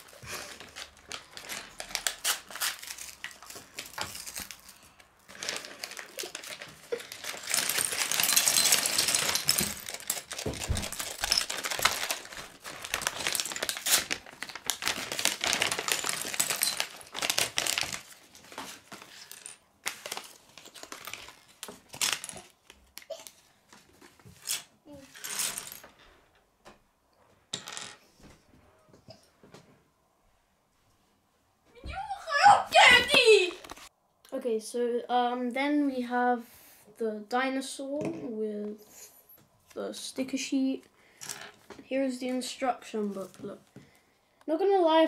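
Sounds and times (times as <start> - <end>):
paper bag crinkling: 0.0 - 22.3
plastic pieces clattering on wood: 3.0 - 23.4.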